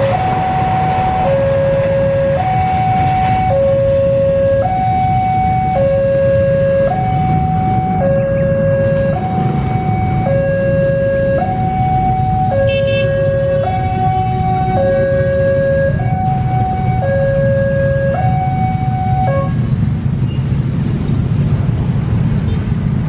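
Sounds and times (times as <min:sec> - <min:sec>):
train rumbling: 0:00.0 - 0:02.3
two-tone electronic alarm: 0:00.0 - 0:19.6.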